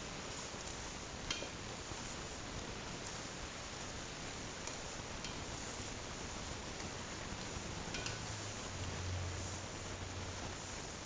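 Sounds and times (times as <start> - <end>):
sauce bubbling in a pot: 0.0 - 11.0
spatula knocking pot: 7.9 - 8.3.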